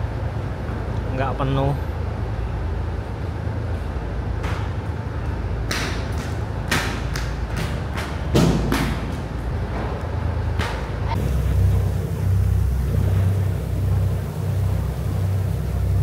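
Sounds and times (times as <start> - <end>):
low rumble on ferry deck: 0.0 - 16.0
sharp knocks: 5.7 - 9.3.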